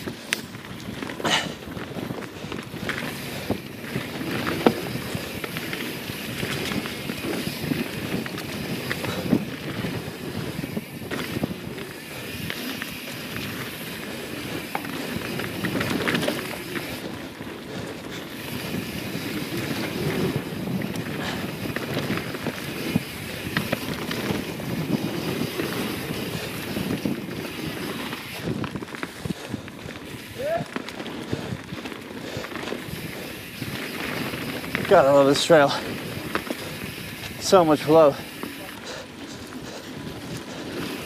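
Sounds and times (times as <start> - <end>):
wind on microphone: 0.0 - 35.0
bike tyres rolling on dirt: 0.0 - 41.0.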